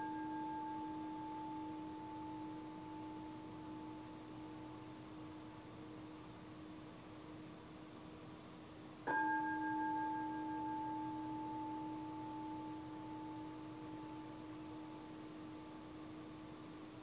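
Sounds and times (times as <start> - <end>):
meditation bell ringing: 0.0 - 6.0, 9.0 - 16.5.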